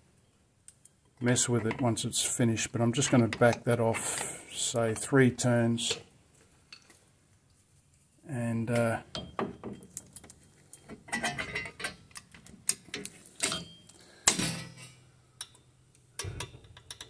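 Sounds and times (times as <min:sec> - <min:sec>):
metallic clicks of hand tools: 0:10.0 - 0:17.0.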